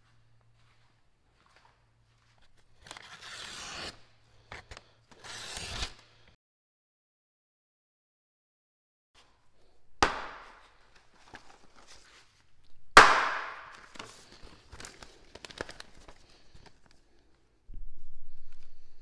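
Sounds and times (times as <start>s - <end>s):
knife chopping through paper: 2.9s - 4.0s, 4.6s - 6.0s, 10.0s - 11.4s
paper crackling and rustling: 10.6s - 12.5s, 13.6s - 17.1s.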